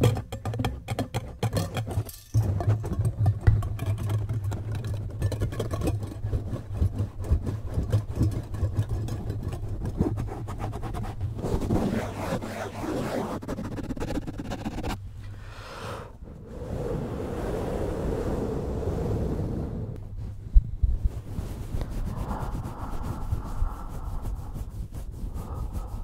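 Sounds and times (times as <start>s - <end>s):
fingers scratching foam windscreen: 4.0s - 15.0s, 21.0s - 26.0s
low rumble: 16.1s - 26.0s.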